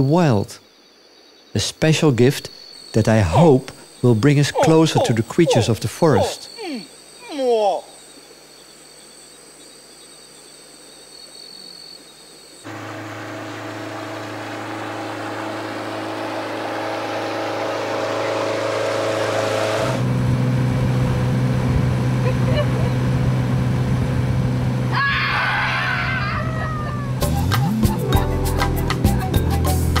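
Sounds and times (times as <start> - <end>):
insect buzz: 0.0 - 18.8
boat motor drone: 12.6 - 28.0.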